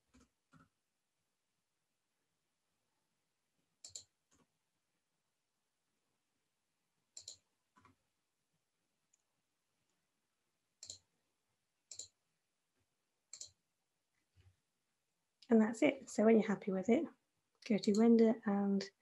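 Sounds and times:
computer mouse and keyboard clicks: 3.8 - 4.5, 7.2 - 8.0, 10.8 - 11.1, 11.9 - 12.2, 13.3 - 13.6.

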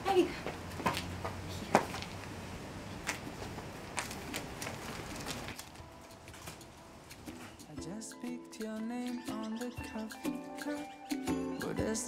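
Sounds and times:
outdoor background noise: 0.0 - 8.0.

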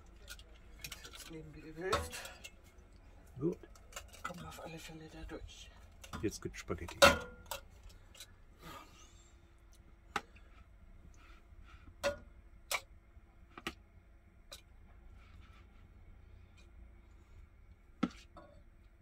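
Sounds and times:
metal utensils clicking and tapping: 0.0 - 2.6, 3.6 - 4.6, 5.9 - 8.3.

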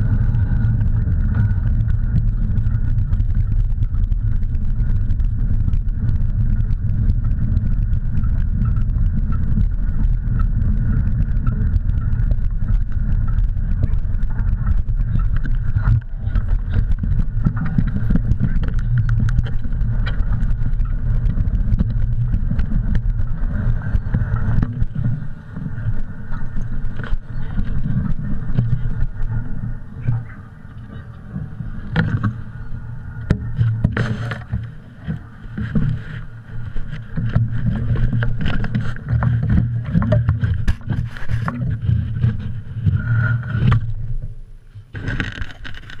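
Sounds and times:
wind rumbling on microphone: 0.0 - 46.0
camera knocks and rattles: 44.9 - 46.0.

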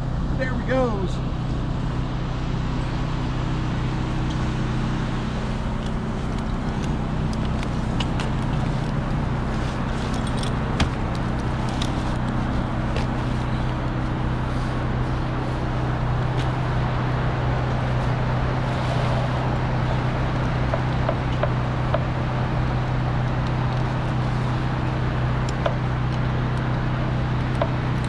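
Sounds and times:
city traffic: 0.0 - 28.0
low machine hum: 0.0 - 28.0.

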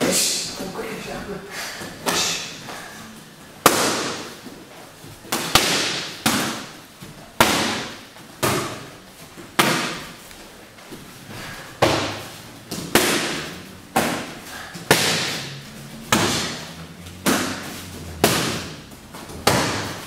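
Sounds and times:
boxing gloves punching focus mitts: 3.6 - 10.3, 10.9 - 20.0.

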